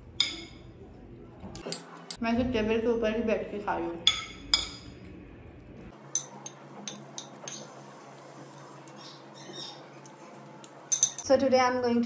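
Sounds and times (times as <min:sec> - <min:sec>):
dishes and cutlery clinking: 0:01.5 - 0:02.2, 0:04.0 - 0:05.0, 0:06.0 - 0:07.8, 0:08.5 - 0:11.3.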